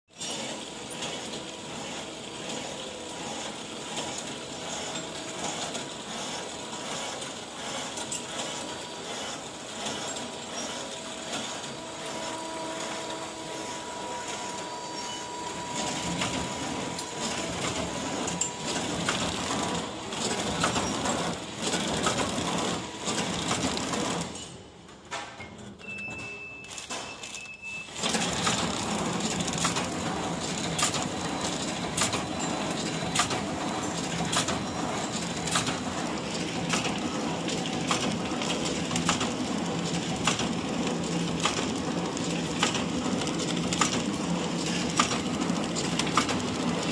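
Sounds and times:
wrapping machine clatter and whir: 0.1 - 46.9
machine clicks: 15.8 - 25.4, 26.1 - 46.9.

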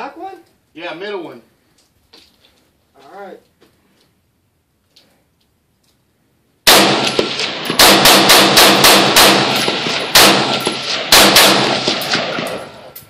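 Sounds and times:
rifle shots: 6.6 - 13.0.

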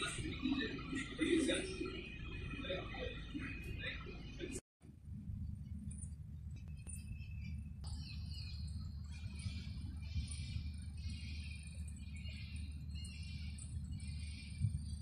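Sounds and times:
low rumble: 0.0 - 15.0
small birds chirping: 6.4 - 15.0.

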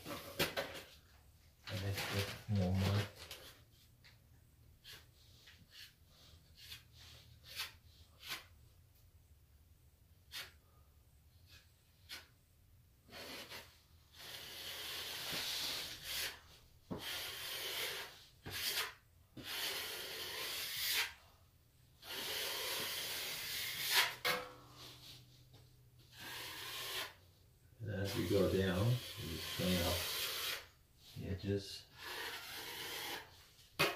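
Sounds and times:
plastering knife scraping wall: 4.8 - 8.6, 10.2 - 10.8, 11.4 - 12.4, 13.0 - 21.4, 22.0 - 25.2, 26.1 - 27.2, 28.0 - 31.2, 31.8 - 33.9.

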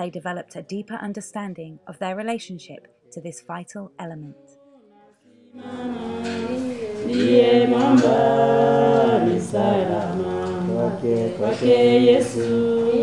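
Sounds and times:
group singing a cappella: 4.0 - 13.0.

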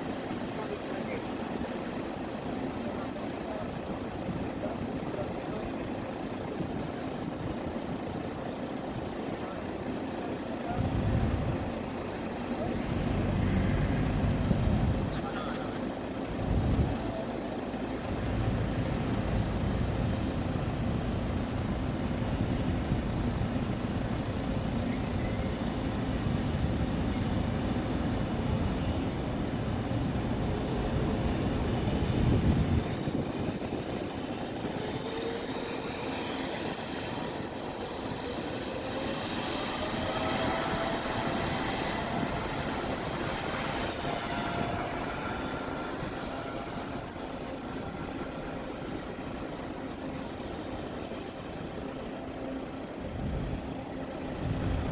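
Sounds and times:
jet engine low rumble: 0.0 - 54.9
jet engines whining spooling up: 22.7 - 54.9.

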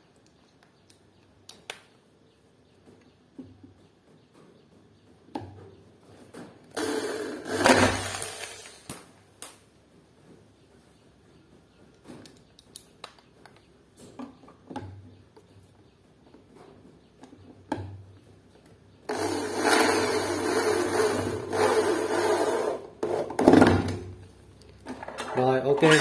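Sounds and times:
drill driving a screw: 6.8 - 8.7, 19.1 - 22.9.

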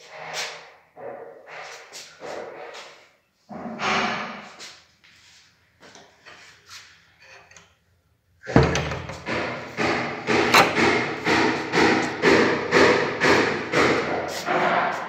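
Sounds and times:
loud regular knocks: 8.5 - 15.0.

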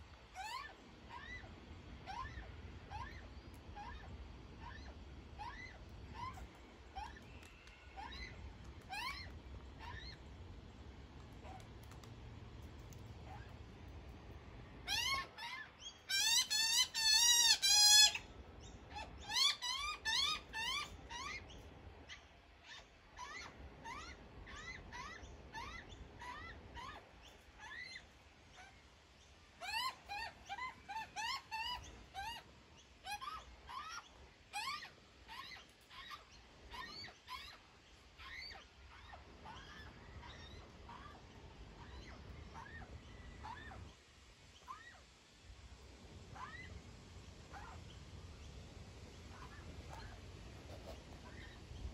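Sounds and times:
young magpie squawking: 14.9 - 18.2, 19.2 - 21.4.

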